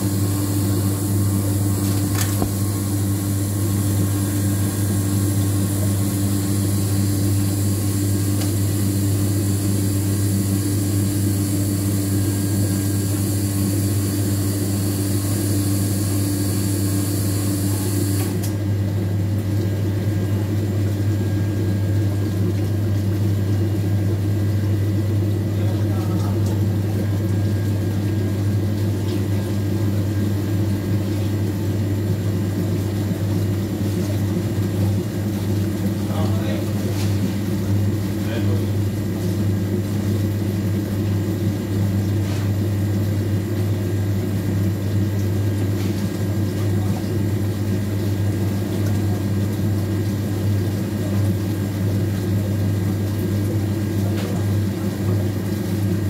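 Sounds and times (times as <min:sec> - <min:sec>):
washing machine motor hum: 0:00.0 - 0:56.0.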